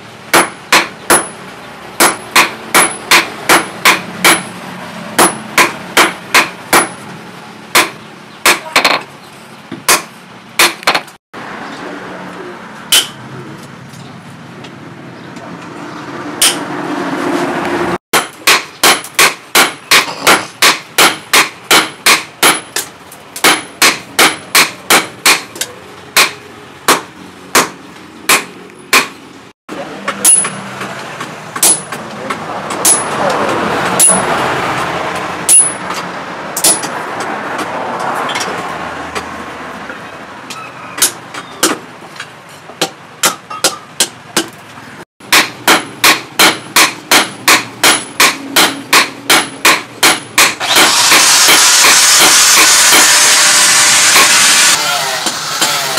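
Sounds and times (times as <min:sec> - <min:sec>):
hammer striking steel blade on anvil: 0:12.9 - 0:13.2, 0:16.4 - 0:16.7, 0:30.1 - 0:30.6, 0:31.6 - 0:32.0, 0:32.7 - 0:33.2, 0:36.6 - 0:37.0, 0:42.8 - 0:44.6, 0:45.3 - 0:50.9.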